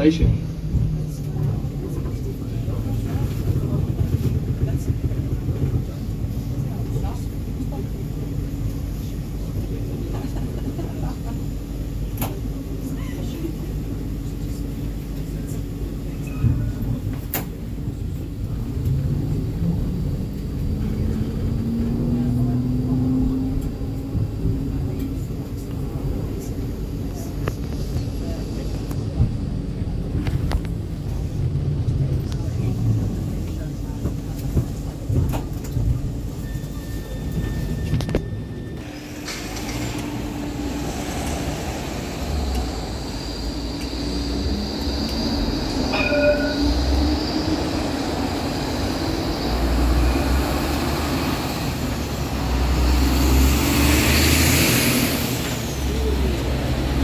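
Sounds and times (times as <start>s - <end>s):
tram running rumble: 0.0s - 57.0s
tram motor hum rising: 13.4s - 36.2s, 37.9s - 57.0s
car passing: 38.8s - 57.0s.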